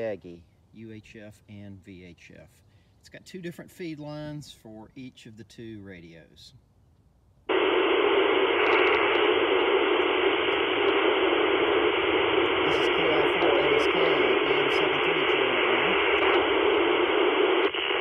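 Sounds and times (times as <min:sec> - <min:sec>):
radio static hiss: 0:00.0 - 0:03.2, 0:07.5 - 0:18.0
faint voice over radio: 0:12.2 - 0:17.3.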